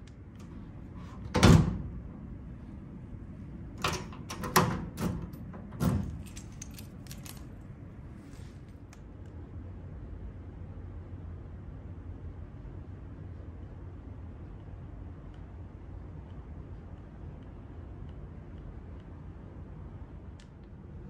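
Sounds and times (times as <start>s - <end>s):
door shutting with heavy thud: 1.0s - 2.1s.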